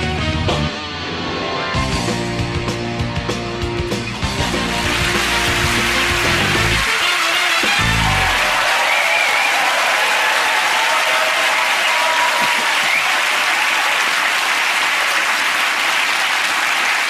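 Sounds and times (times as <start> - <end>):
theme music: 0.0 - 9.5
audience applauding: 4.2 - 17.0.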